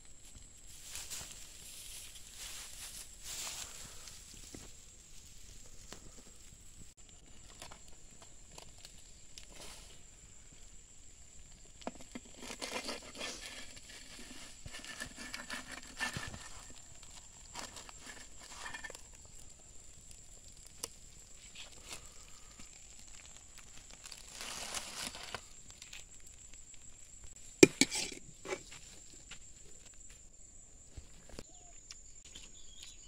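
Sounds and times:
leaf wrapping crinkling: 0.7s - 6.4s, 11.8s - 27.3s.

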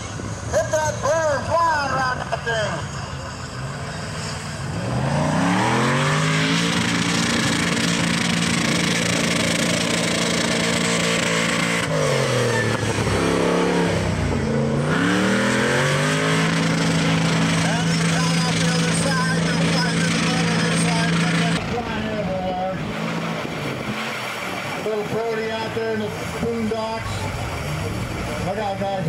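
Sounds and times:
engine revving hard: 4.6s - 26.6s.

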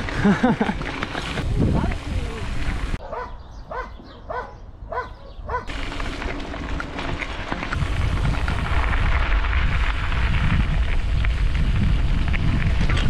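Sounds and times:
bicycle tyres rolling on gravel: 0.0s - 3.0s, 5.5s - 13.0s
wind on microphone: 1.3s - 3.0s, 7.7s - 13.0s.

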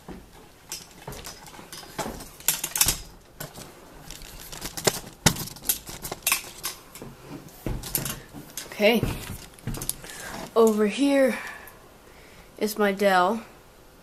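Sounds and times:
microphone handling noise: 7.0s - 10.7s.

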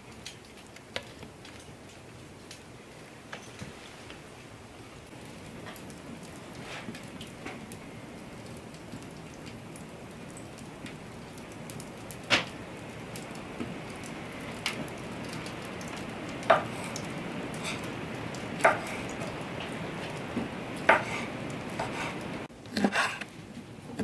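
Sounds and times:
wood fire crackling: 0.0s - 24.0s.

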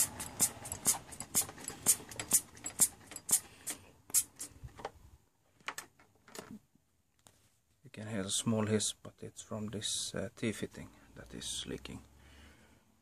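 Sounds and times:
hand pressure pump strokes: 0.0s - 4.8s.

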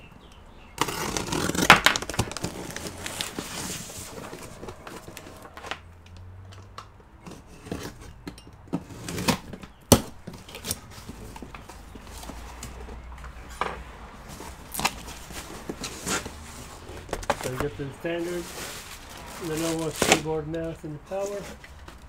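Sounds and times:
tape being slit: 0.8s - 4.4s
cardboard flaps scraping and crackling: 0.8s - 5.8s, 14.3s - 20.3s.

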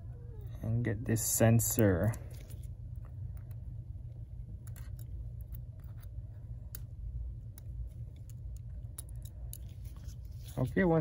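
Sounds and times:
low steady hum: 0.0s - 11.0s
metal tweezers clicking: 4.6s - 6.9s, 7.5s - 9.7s.

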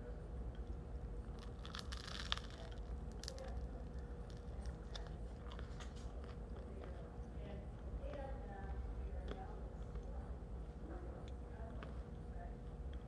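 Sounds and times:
person chewing crunchy bread: 0.5s - 8.2s.

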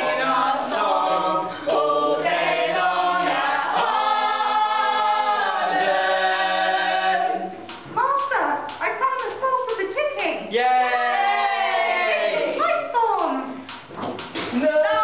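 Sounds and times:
group singing a cappella: 0.0s - 7.8s.

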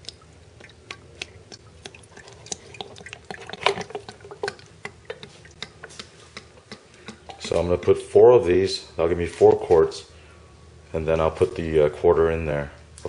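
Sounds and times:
oil pouring into funnel: 0.0s - 5.5s
glugging pops and drips: 0.0s - 8.0s.

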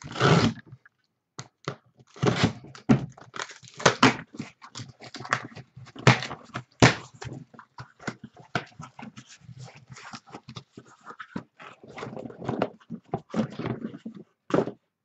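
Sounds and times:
cutter slitting packing tape: 0.0s - 0.6s.

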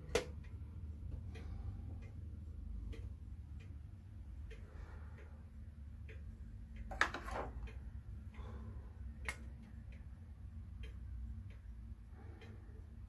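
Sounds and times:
clock ticking: 0.0s - 13.0s
clock rattle: 4.4s - 13.0s.

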